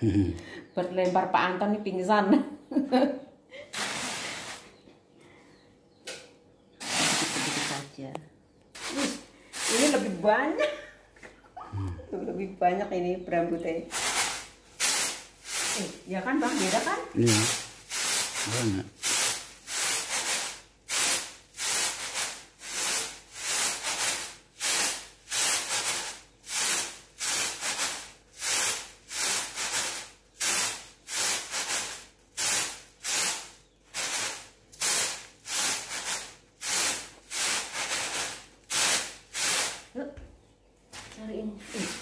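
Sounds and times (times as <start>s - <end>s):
rice grains hissing on bamboo tray: 3.8s - 4.7s, 6.8s - 7.9s, 8.8s - 10.2s, 13.9s - 39.9s.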